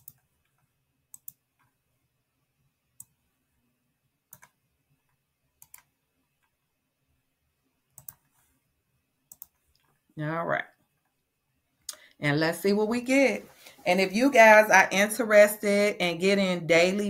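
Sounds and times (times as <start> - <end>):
computer mouse clicks: 0.0 - 1.8, 3.0 - 3.2, 4.3 - 6.6, 7.9 - 8.4, 9.3 - 10.0.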